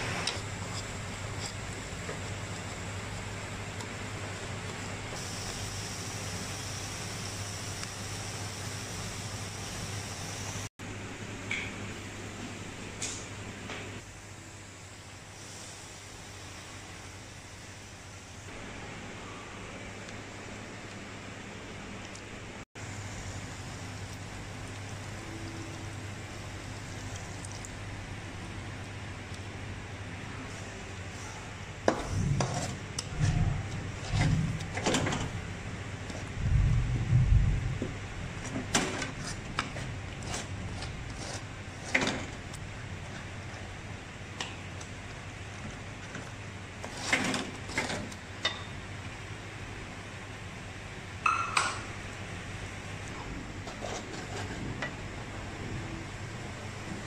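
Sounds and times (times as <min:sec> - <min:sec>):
hot wok sizzling: 0:00.0 - 0:10.7.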